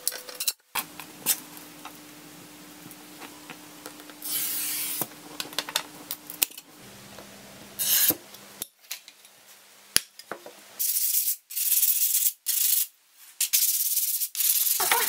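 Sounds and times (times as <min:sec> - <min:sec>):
glass cutter scoring glass: 0:04.2 - 0:05.1, 0:07.8 - 0:08.2.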